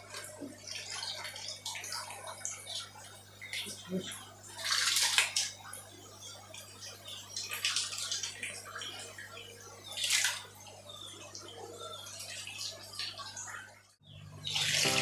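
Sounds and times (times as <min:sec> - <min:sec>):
water splashing and dripping: 0:00.0 - 0:11.3, 0:12.2 - 0:14.0.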